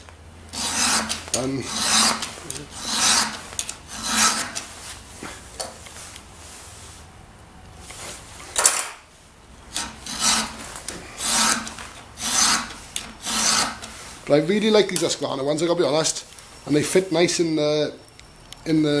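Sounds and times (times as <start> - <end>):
file rasping on saw chain: 0.5 - 4.7, 9.7 - 14.0.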